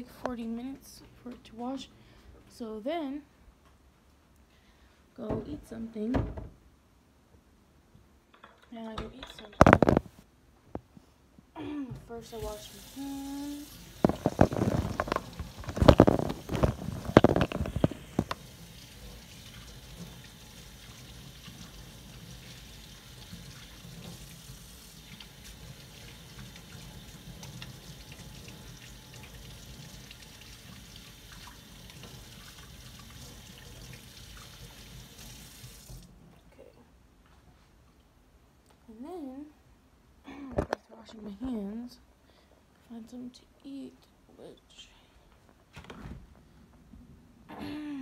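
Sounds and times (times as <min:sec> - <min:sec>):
faucet water running into sink: 0:12.3 - 0:36.1.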